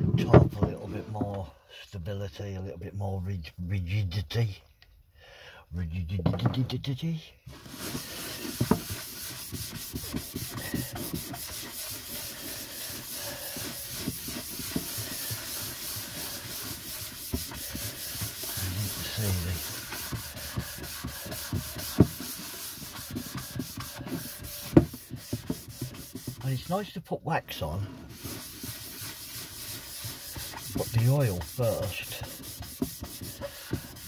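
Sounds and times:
cloth rubbing on wood: 7.5s - 34.0s.

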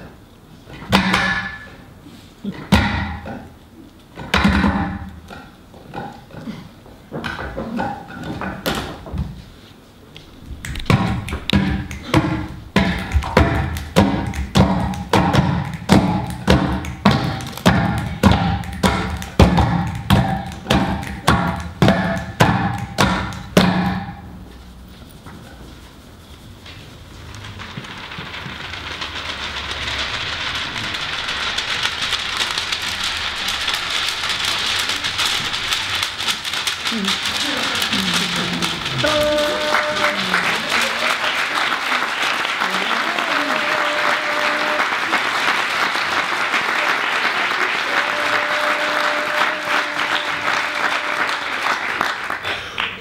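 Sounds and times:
hand percussion claps and slaps: 10.4s - 24.4s, 28.7s - 53.0s
paper crumpling and rustling: 26.7s - 39.6s.

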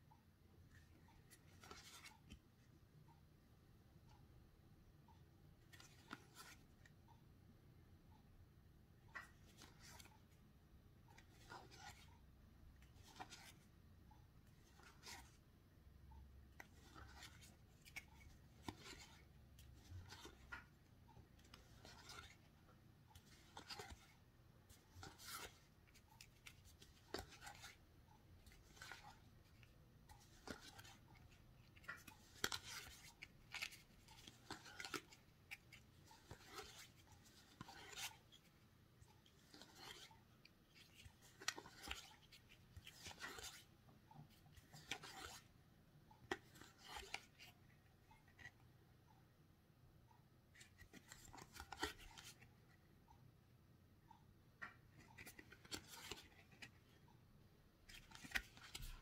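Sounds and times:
cards sliding against each other: 1.2s - 2.4s, 5.7s - 6.6s, 9.2s - 10.2s, 11.2s - 12.1s, 12.8s - 13.7s, 14.6s - 15.4s, 16.6s - 20.7s, 21.4s - 22.6s, 23.2s - 27.8s, 28.4s - 38.6s, 39.2s - 43.7s, 44.6s - 45.5s, 46.3s - 47.4s, 50.6s - 52.5s, 55.0s - 56.8s, 57.9s - 59.0s.

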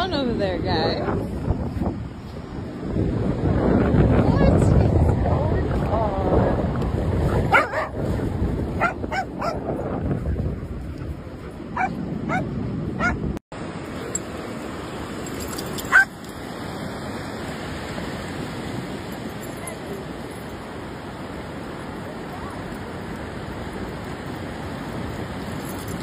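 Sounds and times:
wind: 0.0s - 26.0s
dogs yipping and barking: 7.2s - 9.7s, 11.0s - 13.2s, 15.5s - 16.3s, 19.4s - 20.5s.

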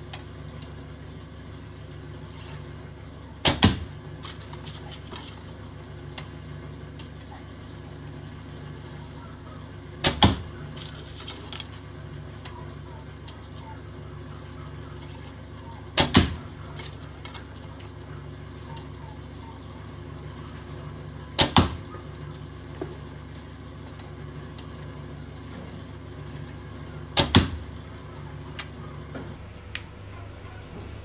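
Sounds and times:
arrow striking target: 3.4s - 3.9s, 10.0s - 10.5s, 16.0s - 16.4s, 21.4s - 21.8s, 27.2s - 27.6s.

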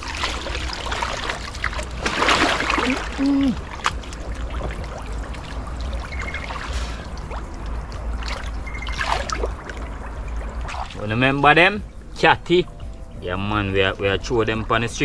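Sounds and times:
person wading through water: 0.0s - 11.1s
water trickling: 0.0s - 15.0s.

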